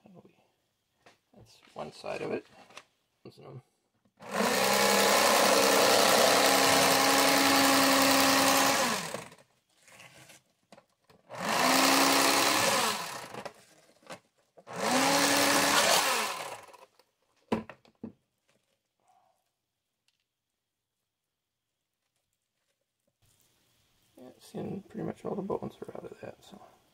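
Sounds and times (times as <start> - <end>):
electric fillet knife motor whining: 4.2 - 9.4, 11.3 - 13.5, 14.7 - 16.9.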